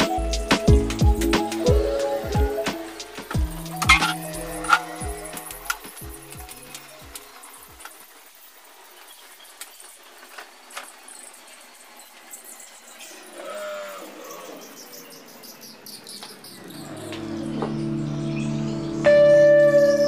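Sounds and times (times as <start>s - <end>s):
soft music: 0.0s - 8.2s, 16.8s - 20.0s
broom sweeping a tiled floor: 2.0s - 11.3s.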